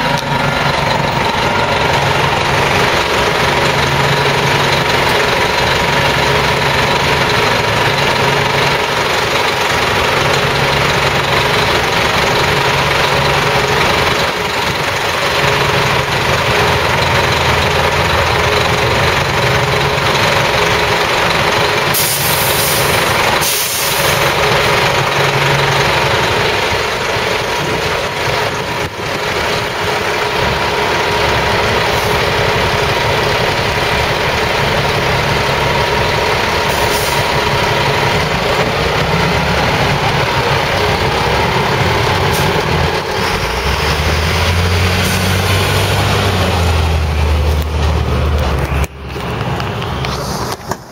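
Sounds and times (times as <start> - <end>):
diesel engine idling: 0.0 - 50.9
air hissing: 21.9 - 24.3.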